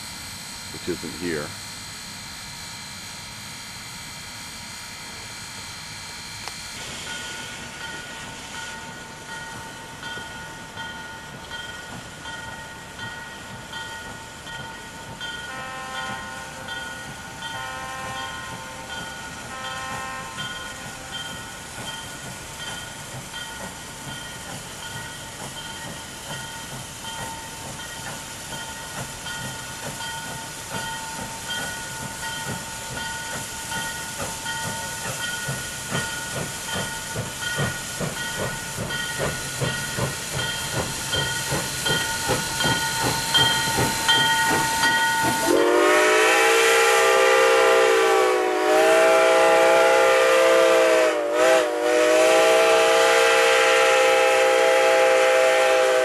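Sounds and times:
steam locomotive exhaust chuffs: 0.0s - 56.0s
steam whistle blasts: 15.4s - 21.4s, 44.0s - 56.0s.

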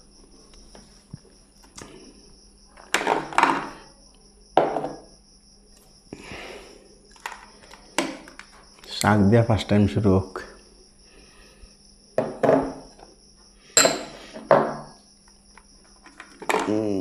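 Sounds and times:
glass bowl clinking on plate: 13.8s - 14.8s.

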